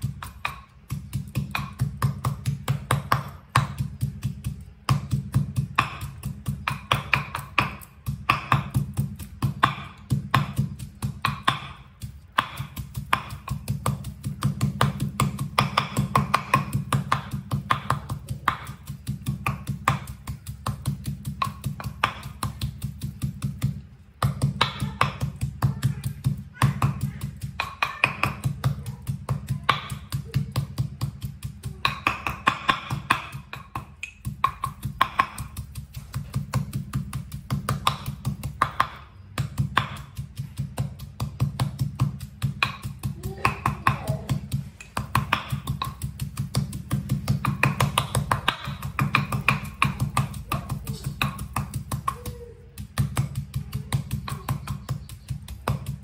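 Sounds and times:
pestle pounding in mortar: 0.0 - 56.0.

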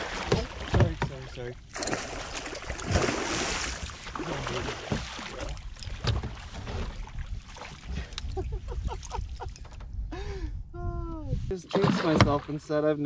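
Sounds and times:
fish splashing in water: 1.7 - 5.6.

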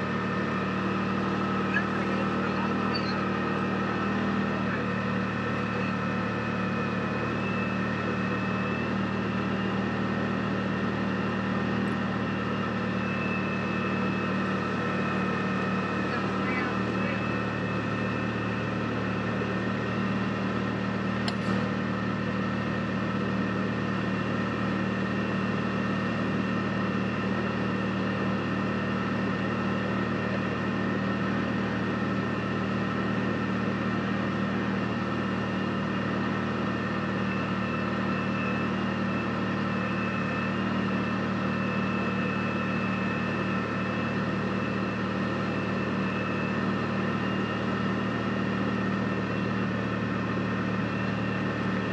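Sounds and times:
utility vehicle engine droning: 0.0 - 51.9.

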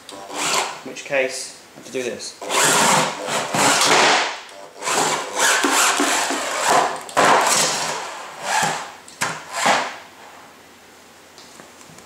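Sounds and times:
metal arms scraping wooden board: 0.1 - 0.8, 2.4 - 10.0.

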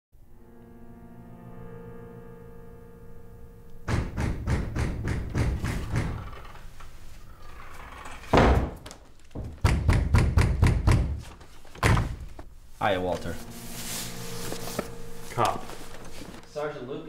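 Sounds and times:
heavy knocking on wooden door: 3.9 - 6.3, 9.4 - 11.2
low droning tone: 13.2 - 17.0.

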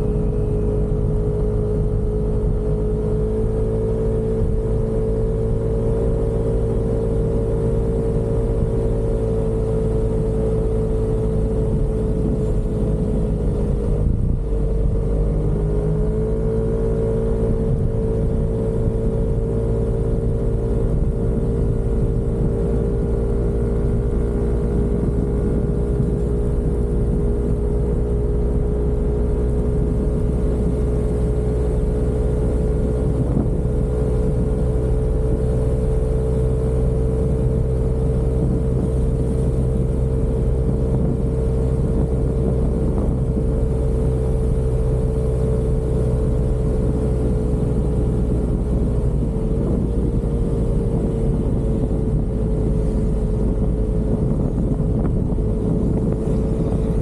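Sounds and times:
scooter engine running: 0.0 - 3.6.

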